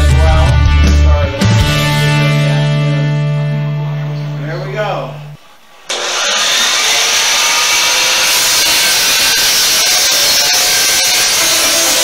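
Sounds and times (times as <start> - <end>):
miter saw cutting wood: 5.9 - 12.0.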